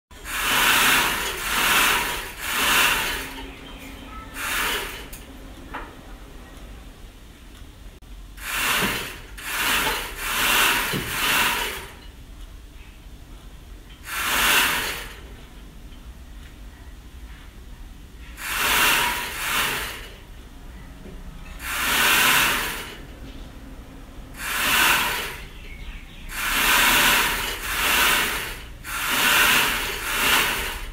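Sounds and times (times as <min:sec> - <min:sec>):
sewing machine whirring: 0:00.1 - 0:05.3, 0:08.4 - 0:12.1, 0:14.0 - 0:15.3, 0:18.3 - 0:20.4, 0:21.4 - 0:23.1, 0:24.3 - 0:30.9.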